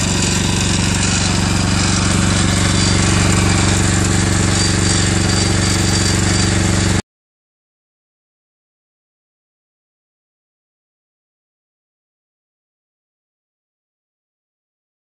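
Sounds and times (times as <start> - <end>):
paver engine running with rattling: 0.0 - 7.0.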